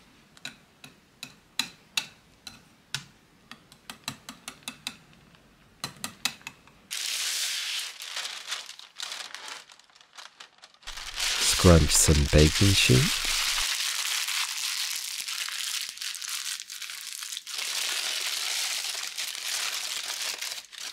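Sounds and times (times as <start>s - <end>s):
baking paper rustling: 6.9s - 20.9s.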